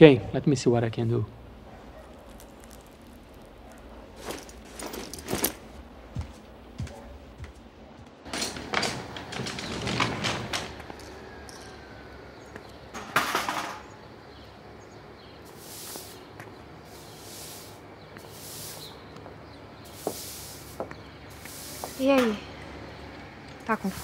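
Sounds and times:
knocks and rustles: 2.0s - 11.8s
broom sweeping paving stones: 2.1s - 5.8s, 15.4s - 19.2s, 19.8s - 22.4s, 23.7s - 24.0s.

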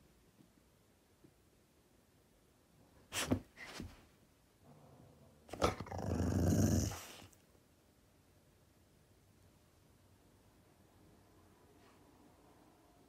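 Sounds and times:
dog growling: 5.4s - 7.3s.

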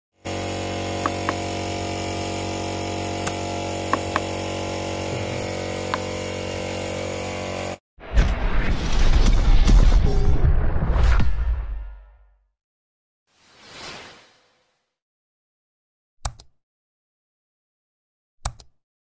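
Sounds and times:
air compressor running: 0.2s - 7.8s.

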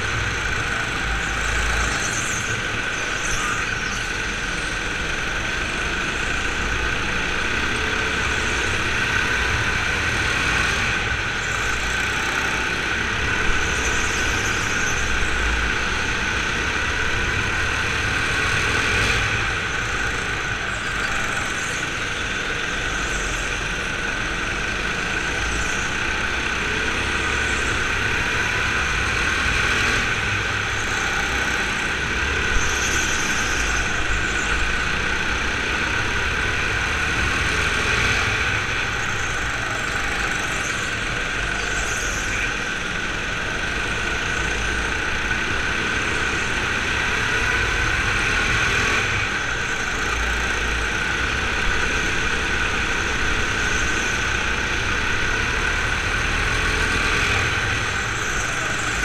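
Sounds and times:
go-kart motor running: 0.0s - 59.0s.

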